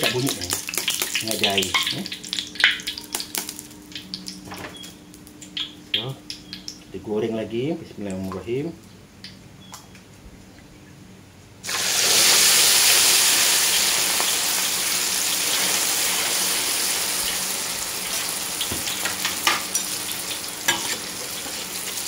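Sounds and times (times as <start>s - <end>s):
egg sizzling in hot oil: 0.0s - 6.8s, 11.6s - 22.0s
oil popping: 0.0s - 6.8s.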